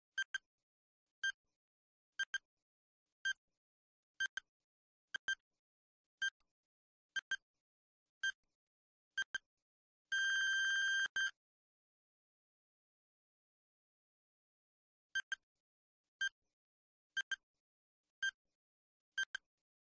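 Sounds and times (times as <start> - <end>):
long continuous beep: 10.1 - 11.4.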